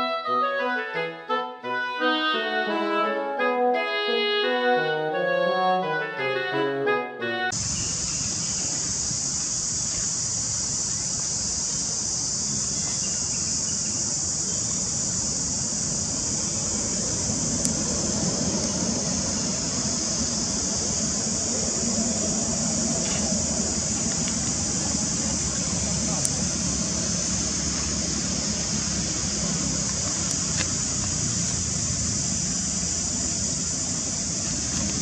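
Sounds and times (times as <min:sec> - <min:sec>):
high-pitched insect chorus: 0:07.5 - 0:35.0
low outdoor rumble: 0:14.2 - 0:35.0.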